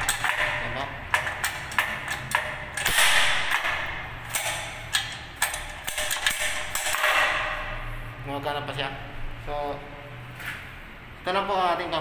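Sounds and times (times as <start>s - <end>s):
rattling metal clatter: 0.0s - 7.6s.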